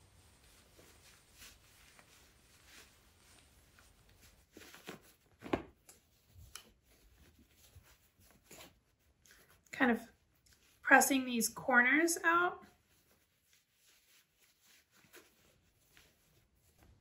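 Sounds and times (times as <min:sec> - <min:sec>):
fabric rustling: 0:00.0 - 0:11.2, 0:12.6 - 0:17.0.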